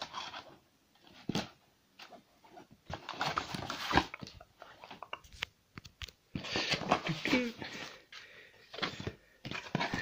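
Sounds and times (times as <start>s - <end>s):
cardboard scraping: 0.0s - 5.0s
cardboard tearing and rustling: 2.9s - 4.3s.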